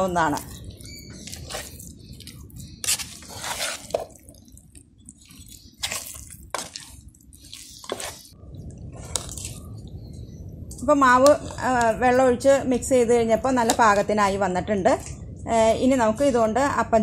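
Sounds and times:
metal spoon stirring batter: 0.0 - 10.2.

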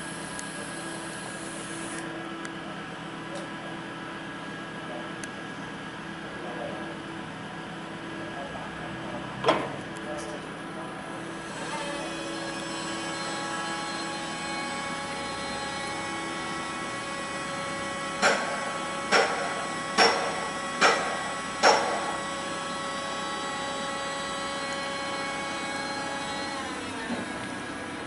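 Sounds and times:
hydraulic lift pump whining: 11.3 - 28.0.

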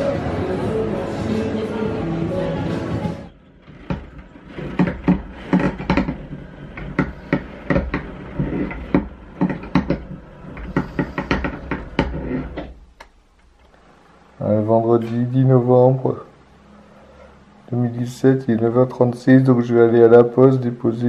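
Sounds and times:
roller shutter slats clattering: 3.5 - 12.9.

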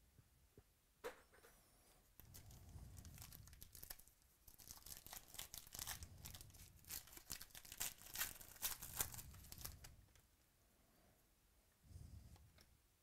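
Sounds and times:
foil wrapper crinkling and tearing: 2.2 - 9.9.

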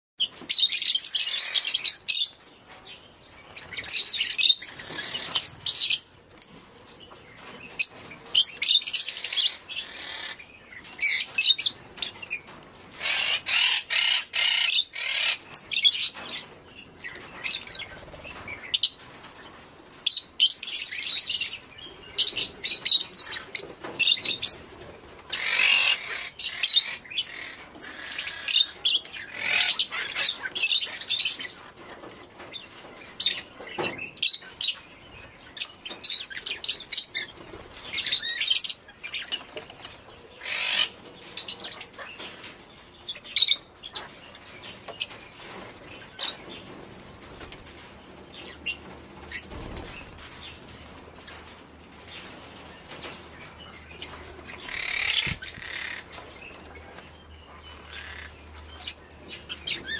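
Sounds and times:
lovebirds chirping and chattering: 0.2 - 59.9.

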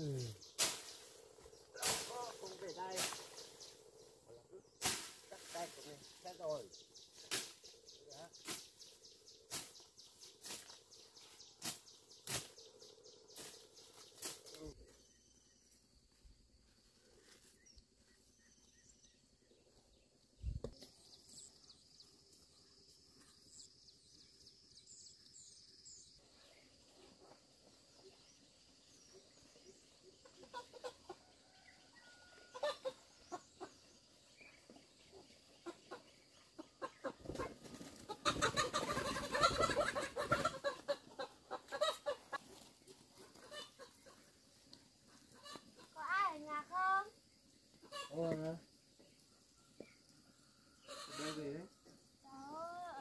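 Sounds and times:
chickens clucking: 0.0 - 8.8, 29.5 - 46.2, 47.5 - 52.4.

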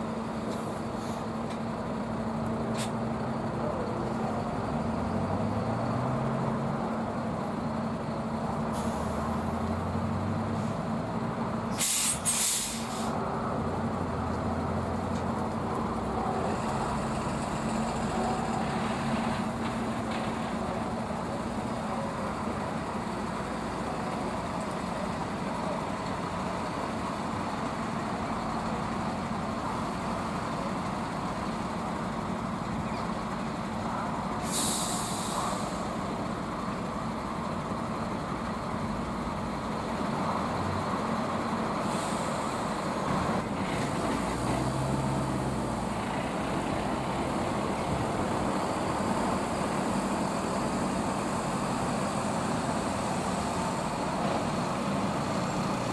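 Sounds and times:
diesel trucks rolling past: 0.0 - 55.9
air-brake hiss: 0.5 - 1.3, 2.7 - 3.0, 8.7 - 9.4, 11.7 - 13.2, 34.4 - 36.0, 41.8 - 42.7.

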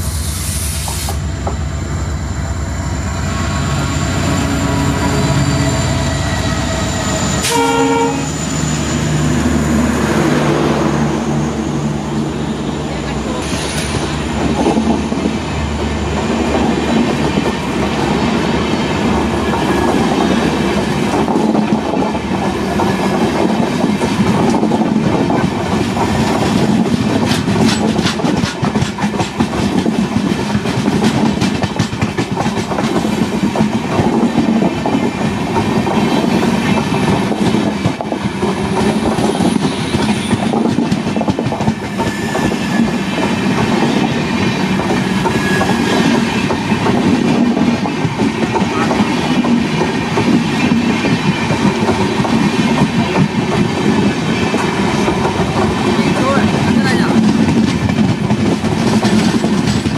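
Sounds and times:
train wheels rumbling on rails: 0.0 - 59.9
clickety-clack over rail joints: 16.1 - 59.9.

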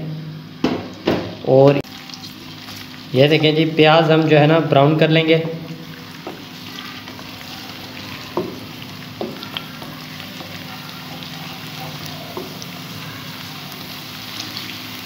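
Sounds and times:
onion sizzling in hot fat: 0.8 - 15.0
spatula knocking and scraping pot: 8.3 - 10.6.

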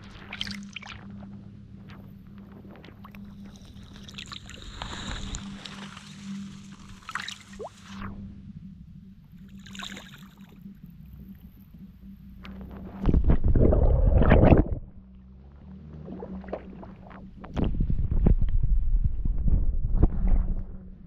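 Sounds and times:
water sloshing and splashing: 3.0 - 8.0, 9.5 - 10.6.

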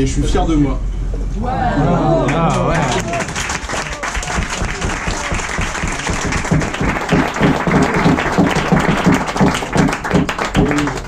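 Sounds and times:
group applauding and cheering: 1.4 - 11.0
rhythmic low thumping: 4.2 - 11.0.

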